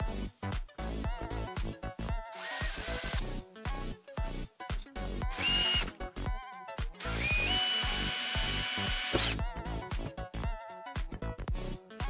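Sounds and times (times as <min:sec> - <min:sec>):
background music with steady beat: 0:00.0 - 0:12.0
cordless drill boring into plastic: 0:02.3 - 0:03.2, 0:05.3 - 0:06.0, 0:07.0 - 0:09.4.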